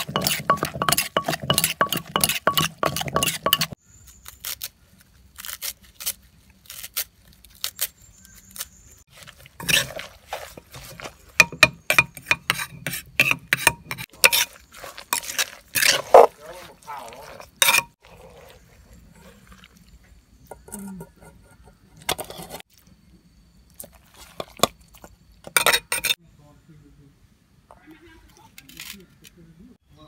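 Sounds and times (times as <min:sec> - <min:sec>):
spoon clinking in a clay mortar: 0:00.0 - 0:03.8, 0:09.6 - 0:16.3, 0:17.6 - 0:18.0, 0:25.5 - 0:26.2.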